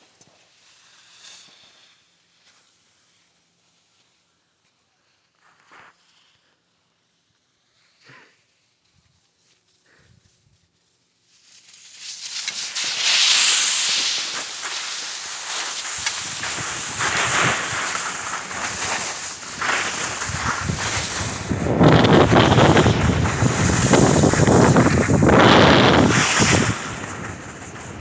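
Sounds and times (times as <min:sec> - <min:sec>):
skis carving over snow: 0:05.4 - 0:06.3, 0:11.2 - 0:28.0
wind buffeting microphone: 0:15.8 - 0:28.0.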